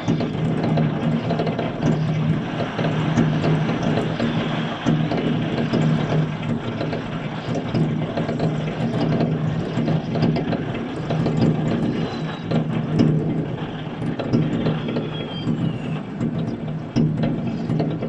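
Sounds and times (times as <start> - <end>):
fireworks crackling and banging: 0.0 - 18.0
steady low hum: 0.0 - 18.0.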